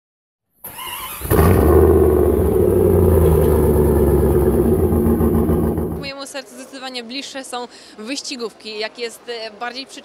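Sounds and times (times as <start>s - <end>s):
vehicle engine rumbling: 1.2s - 6.1s.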